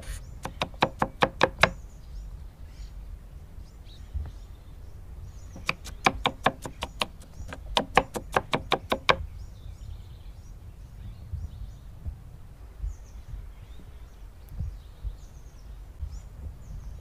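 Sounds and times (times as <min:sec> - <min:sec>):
knife chopping on wooden board: 0:00.0 - 0:01.8, 0:05.6 - 0:09.2.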